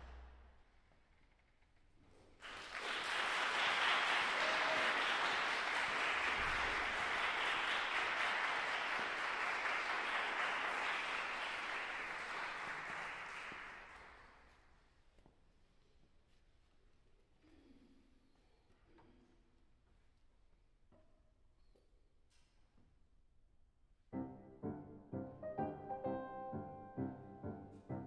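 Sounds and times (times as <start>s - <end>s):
audience applauding: 2.4s - 14.4s.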